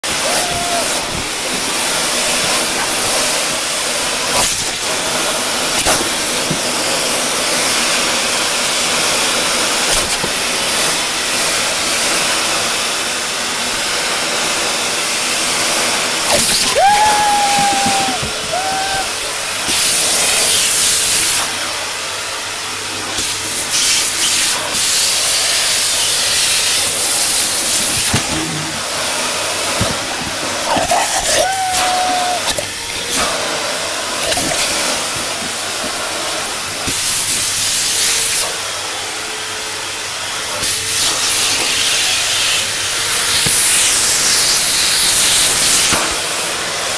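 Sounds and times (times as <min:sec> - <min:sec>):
vacuum cleaner running: 0:00.0 - 0:46.9
short high whines: 0:16.2 - 0:19.6.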